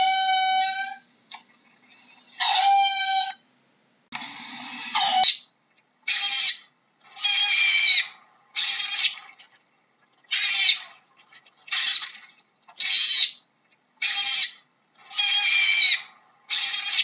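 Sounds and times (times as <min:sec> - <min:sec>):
otter calling: 0:04.8 - 0:05.5, 0:06.1 - 0:09.2, 0:10.3 - 0:10.9, 0:11.7 - 0:12.2, 0:12.8 - 0:17.0.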